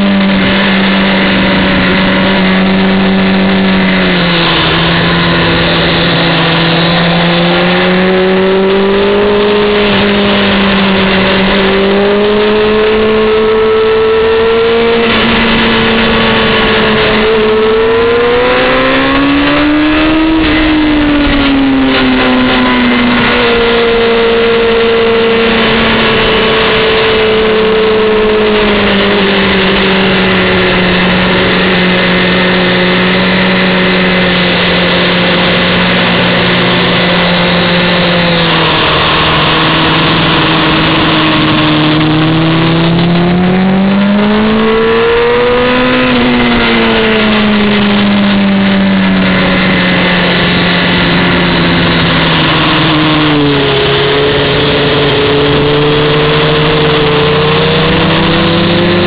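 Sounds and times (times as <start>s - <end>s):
motorcycle engine at speed: 0.0s - 59.0s
wind noise on microphone: 0.0s - 59.0s.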